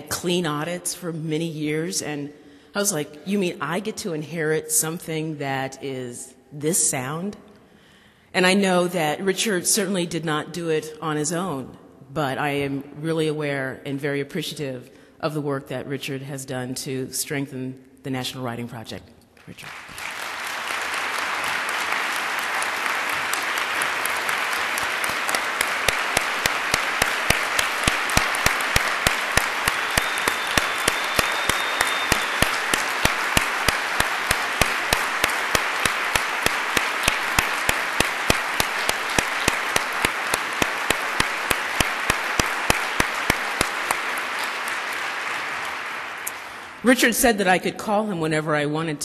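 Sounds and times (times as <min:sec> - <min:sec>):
sharp rhythmic claps: 0:19.3 - 0:46.8
audience applauding: 0:19.5 - 0:46.8.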